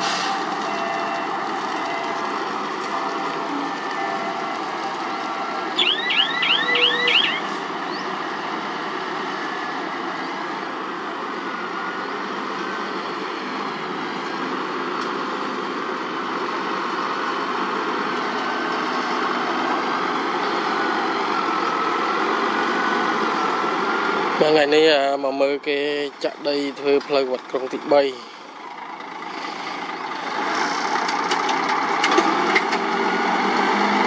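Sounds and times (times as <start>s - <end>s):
diesel truck engine running: 0.0s - 34.0s
rising engine whine: 1.8s - 24.5s
high chirps: 5.8s - 8.1s.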